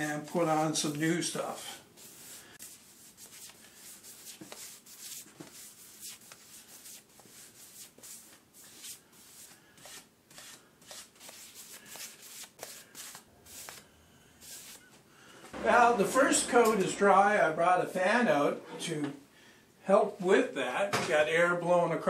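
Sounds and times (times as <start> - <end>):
paintbrush swishing on wood: 0.1 - 13.8, 14.4 - 14.9.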